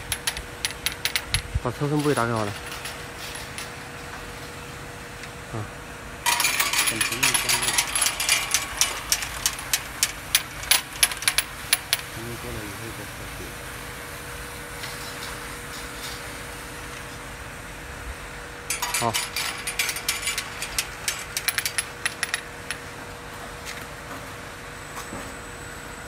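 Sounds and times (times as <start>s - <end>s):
rapid irregular clicking and rattling: 0.0s - 3.8s, 6.2s - 12.1s, 18.7s - 22.8s.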